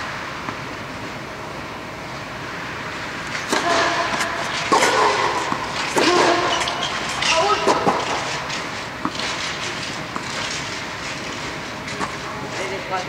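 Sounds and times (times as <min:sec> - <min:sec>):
racket hitting ball: 0:03.3 - 0:12.2.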